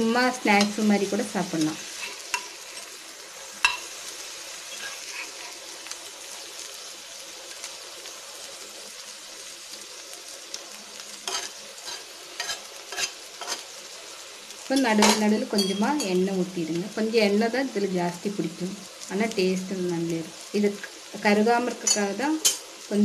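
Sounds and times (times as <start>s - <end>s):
food sizzling in oil: 0.0s - 23.0s
metal spatula scraping griddle: 1.8s - 2.9s, 4.7s - 5.7s, 11.2s - 13.7s.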